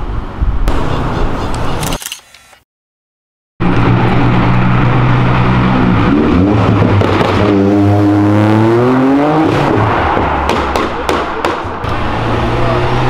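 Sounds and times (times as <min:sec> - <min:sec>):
car engine accelerating: 0:03.6 - 0:10.5, 0:11.8 - 0:13.0.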